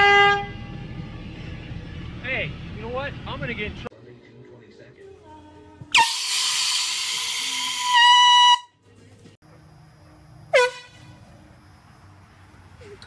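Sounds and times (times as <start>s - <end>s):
handheld air horn blast: 0.0s - 0.7s, 5.9s - 8.7s, 10.5s - 11.0s.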